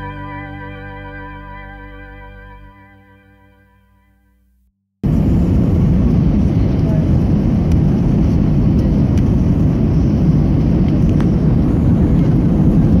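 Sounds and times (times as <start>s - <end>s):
airliner cabin low rumble: 5.0s - 13.0s.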